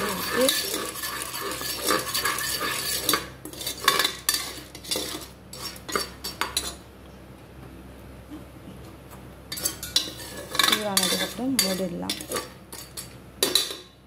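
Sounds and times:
metal spoon scraping pot: 0.0s - 6.8s, 9.5s - 13.9s.

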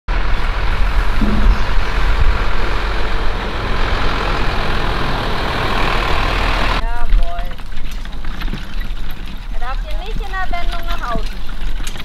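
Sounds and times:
diesel truck engine rumbling: 0.1s - 6.8s.

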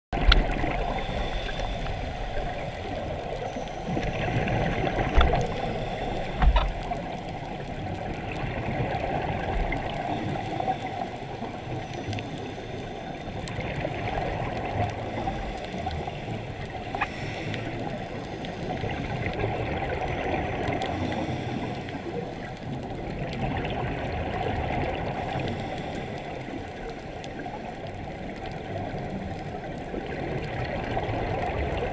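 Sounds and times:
bubbles gurgling: 0.1s - 12.4s, 13.2s - 15.3s, 17.8s - 21.1s, 22.4s - 25.4s, 27.6s - 31.9s
watery hiss: 0.5s - 3.6s, 5.0s - 6.9s, 15.0s - 18.8s
regulator breathing: 0.8s - 3.9s, 5.2s - 6.8s, 15.0s - 18.7s.

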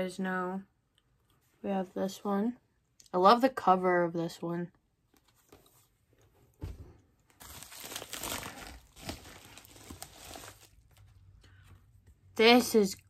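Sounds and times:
packaging crinkling and rustling: 7.2s - 11.3s.

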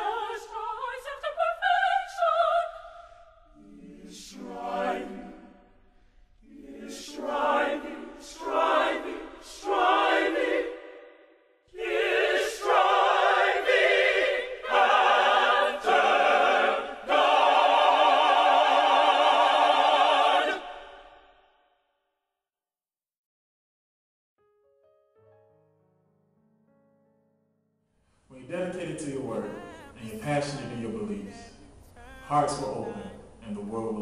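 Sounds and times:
choir singing with vibrato: 0.0s - 21.5s, 28.8s - 33.5s.

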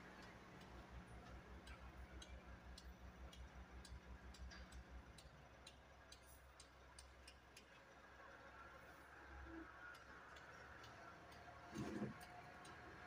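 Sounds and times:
faint ticks and taps: 0.1s - 7.9s, 9.9s - 13.0s.

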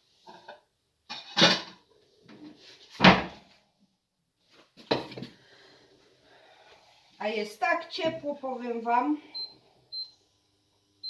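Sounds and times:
cupboard doors and cookware clattering: 0.2s - 3.5s, 4.8s - 5.4s.

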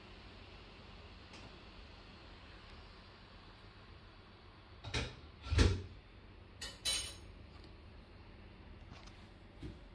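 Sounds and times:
faint steady hiss: 0.0s - 4.9s.

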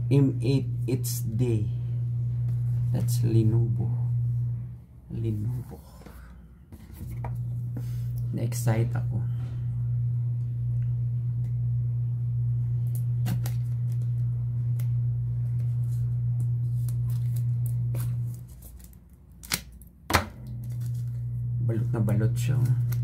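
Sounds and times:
steady low hum: 0.0s - 23.0s
scissors snipping plastic wrap: 16.8s - 21.1s.

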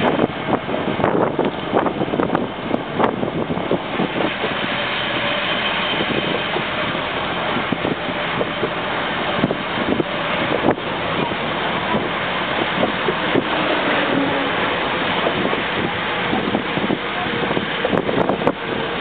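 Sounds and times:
wind and road noise: 0.0s - 19.0s
wind buffeting microphone: 0.0s - 19.0s.

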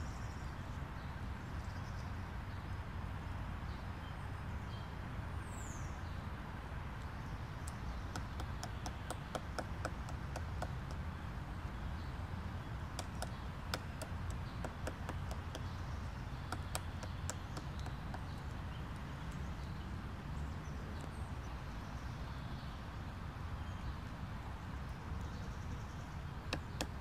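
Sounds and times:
woodpecker knocking on wood: 7.6s - 11.1s, 12.8s - 18.7s, 26.5s - 27.0s.

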